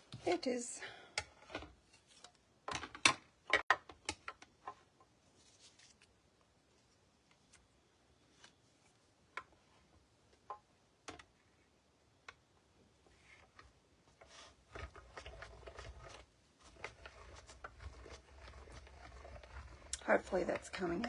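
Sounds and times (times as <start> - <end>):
die-cutting machine rollers turning: 14.7 - 21.0.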